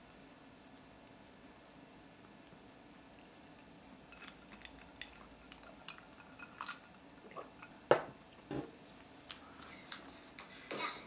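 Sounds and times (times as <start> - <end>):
glass knocking on table: 7.9 - 8.7.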